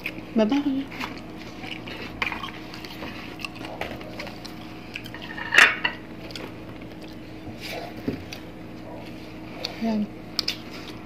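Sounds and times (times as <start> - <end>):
plates and bowl clinking: 5.0 - 6.0
fingers picking at food: 9.6 - 11.0.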